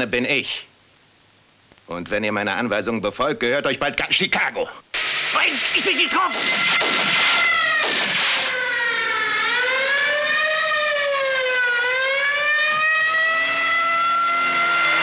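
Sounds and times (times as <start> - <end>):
siren wailing: 5.0 - 15.0.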